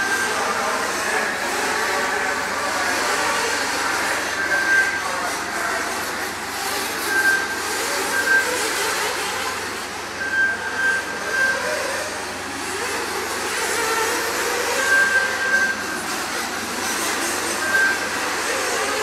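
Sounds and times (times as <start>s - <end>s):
rc car engines racing: 0.0s - 19.0s
short high beeps: 7.0s - 9.1s, 10.2s - 11.6s, 14.8s - 16.0s, 17.5s - 18.2s.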